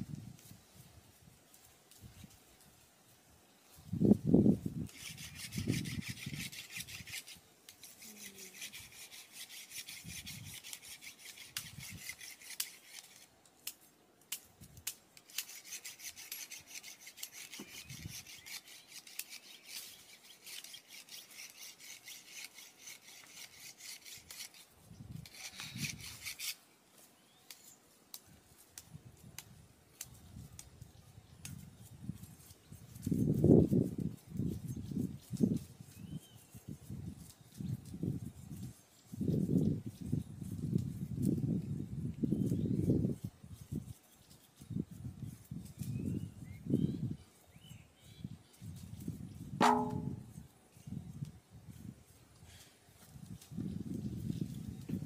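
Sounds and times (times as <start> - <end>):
knives scraping peel: 4.9 - 13.3, 14.3 - 26.6.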